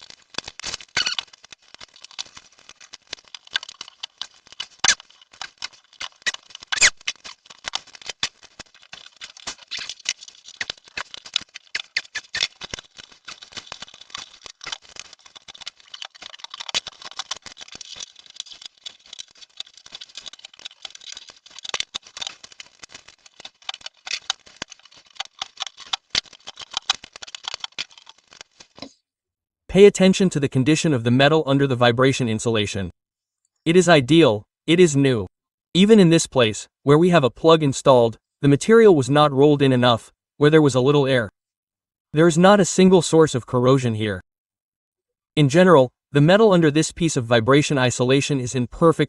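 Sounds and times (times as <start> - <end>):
foil mat tearing and crackling: 0.0 - 28.8
sharp snaps and scrapes: 0.0 - 29.0.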